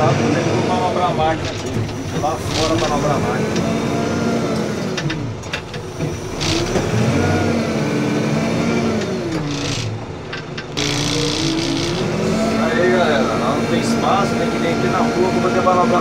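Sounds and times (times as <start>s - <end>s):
diesel engine revving: 0.0s - 16.0s
short clatters: 1.4s - 3.7s, 4.9s - 7.2s, 9.0s - 12.4s.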